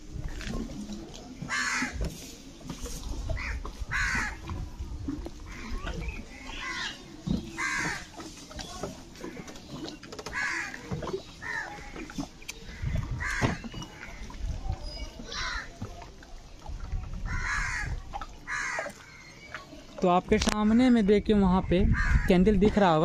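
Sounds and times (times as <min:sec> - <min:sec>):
crows cawing: 0:01.5 - 0:02.0, 0:03.4 - 0:04.4, 0:07.6 - 0:08.1, 0:10.3 - 0:10.8, 0:11.4 - 0:12.0, 0:12.7 - 0:14.3, 0:17.3 - 0:17.9, 0:18.5 - 0:19.2.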